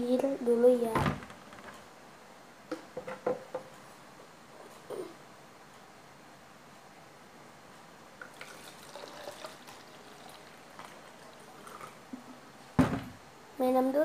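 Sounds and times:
water pouring into plastic cup: 0:08.2 - 0:12.0.

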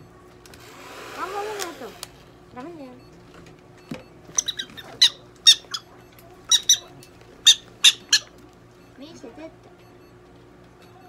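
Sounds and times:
prairie dog chirping: 0:04.4 - 0:08.4.

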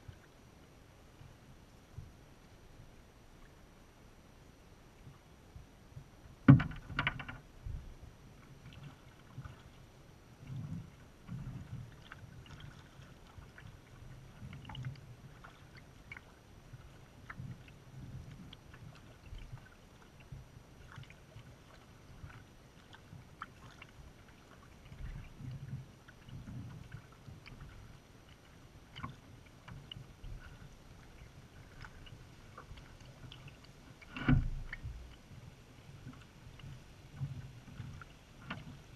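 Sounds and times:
water sloshing against hull: 0:00.0 - 0:38.9
paddle drips and splashes: 0:06.0 - 0:07.5, 0:08.3 - 0:38.9.

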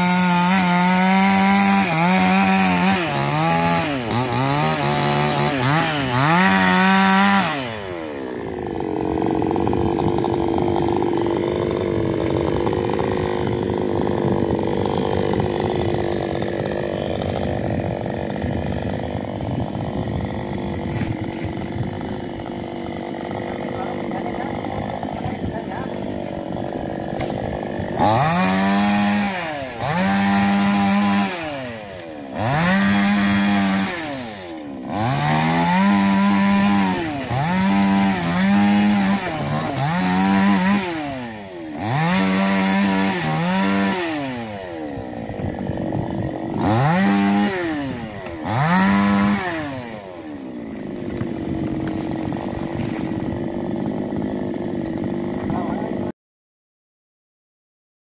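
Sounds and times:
chainsaw revving and cutting wood: 0:00.0 - 0:56.1.

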